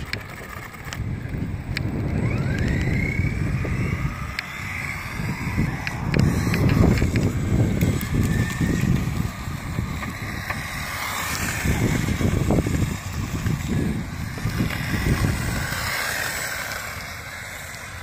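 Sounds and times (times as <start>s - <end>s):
rc car motor whine: 0.0s - 18.0s
wind buffeting microphone: 0.0s - 18.0s.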